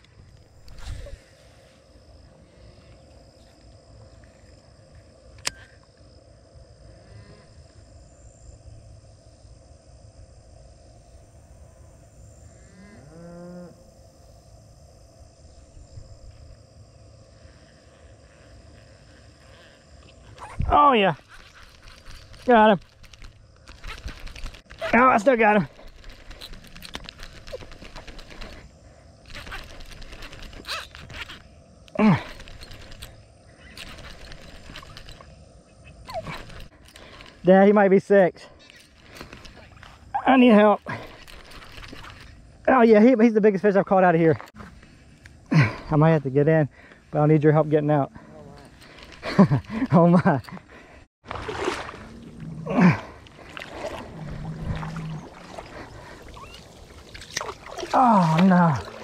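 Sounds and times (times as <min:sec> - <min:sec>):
insects droning: 0:00.0 - 0:59.0
sharp click: 0:05.3 - 0:05.7
fishing reel clicking: 0:32.3 - 0:35.3
low wind rumble: 0:50.7 - 0:58.0.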